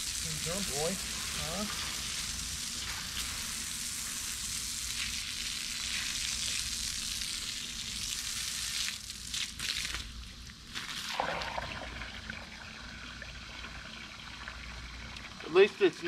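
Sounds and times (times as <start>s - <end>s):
hose spraying water on concrete: 0.0s - 11.6s.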